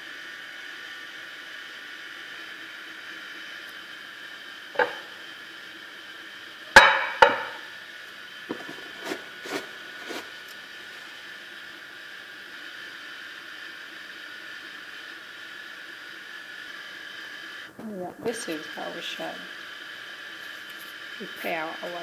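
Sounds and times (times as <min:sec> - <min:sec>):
steady hiss: 0:00.0 - 0:22.0
glass dish knocking on countertop: 0:06.8 - 0:07.6.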